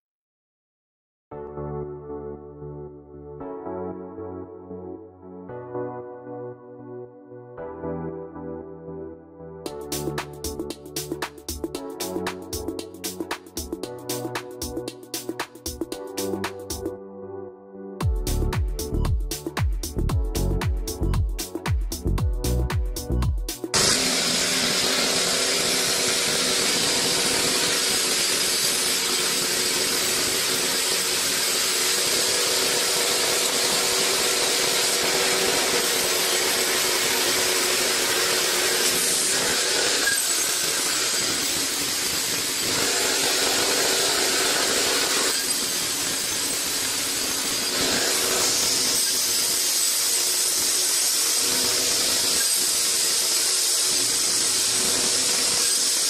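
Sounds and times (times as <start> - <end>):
band saw cutting through wood: 23.6 - 56.0.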